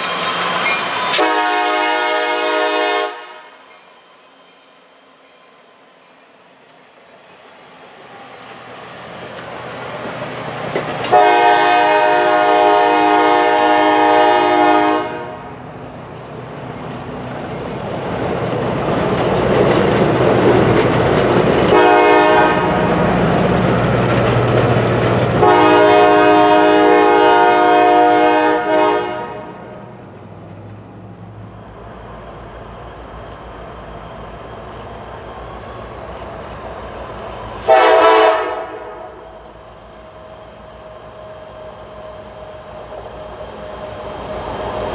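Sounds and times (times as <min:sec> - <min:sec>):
train cars rumbling and clattering: 0:00.0 - 0:05.4, 0:06.0 - 0:44.9
locomotive air horn: 0:01.1 - 0:03.6, 0:11.1 - 0:15.6, 0:21.7 - 0:22.9, 0:25.4 - 0:29.7, 0:37.6 - 0:39.2.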